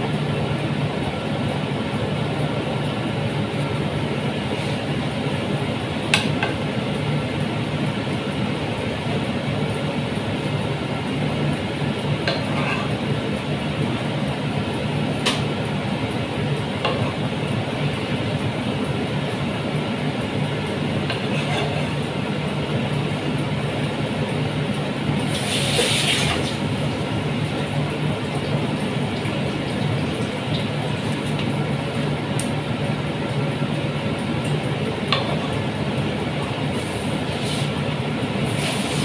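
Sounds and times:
water boiling and bubbling: 25.2 - 32.6
hiss: 25.3 - 26.3.

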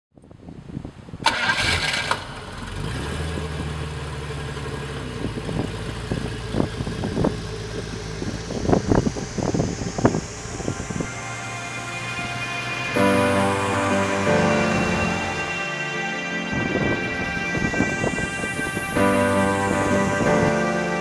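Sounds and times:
car engine idling: 2.3 - 12.9
loud burst of noise: 8.1 - 21.0.

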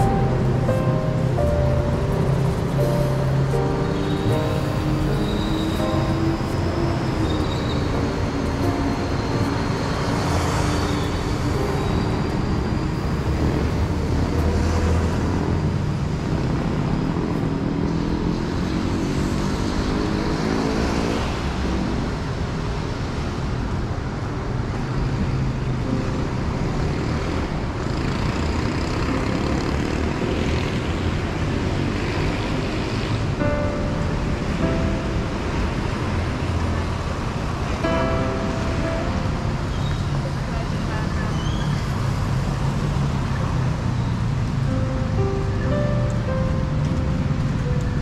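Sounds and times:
traffic rumble on wet street: 0.0 - 48.0.

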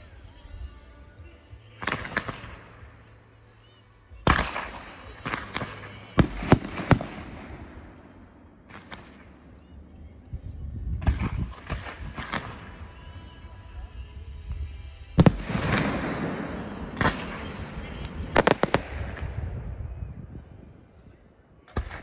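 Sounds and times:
firework bangs with hiss: 4.3 - 7.8, 15.2 - 19.5, 21.7 - 22.0.

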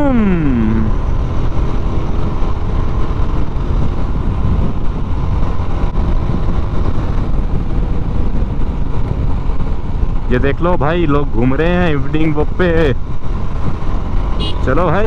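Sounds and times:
motorcycle engine running: 0.0 - 15.0
wind on microphone: 0.8 - 10.3.

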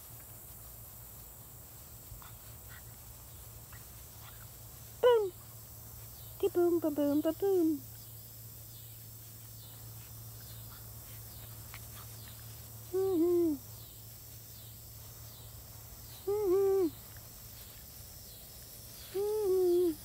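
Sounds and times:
woman humming: 5.0 - 5.4, 12.8 - 13.7, 16.2 - 17.1, 19.0 - 20.0.

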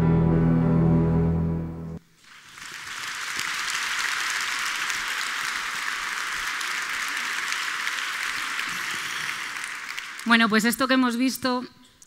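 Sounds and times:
audience applauding: 2.2 - 10.8.

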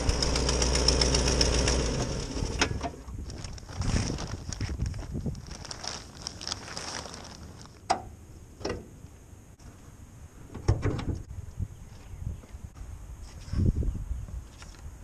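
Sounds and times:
plastic cover rustling: 3.2 - 7.8.

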